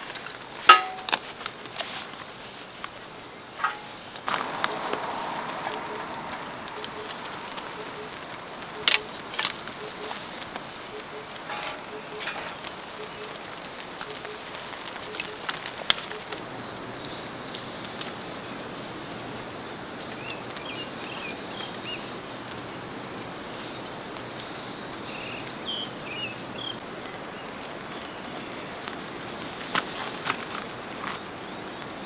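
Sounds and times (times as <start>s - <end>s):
wood fire snap: 0.0s - 16.4s
kindling crackling and popping: 0.0s - 25.1s, 26.6s - 32.0s
stream water rushing: 3.6s - 16.6s
bird chirps: 3.6s - 18.7s.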